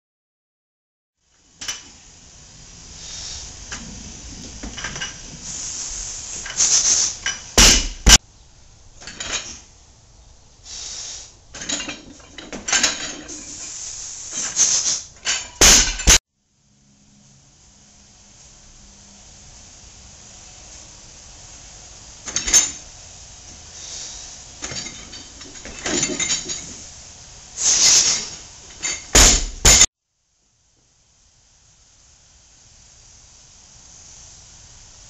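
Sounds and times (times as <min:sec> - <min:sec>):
barbell hitting floor: 0:07.6 - 0:08.2, 0:15.6 - 0:16.2, 0:29.1 - 0:29.9.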